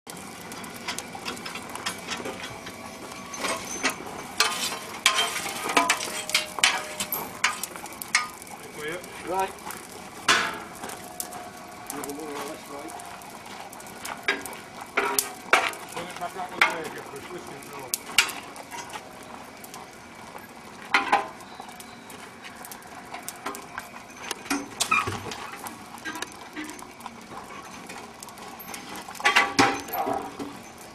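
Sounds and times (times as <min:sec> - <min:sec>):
coal fire crackling: 0:00.1 - 0:30.9
metal clinks and knocks: 0:00.6 - 0:08.6, 0:23.5 - 0:30.9.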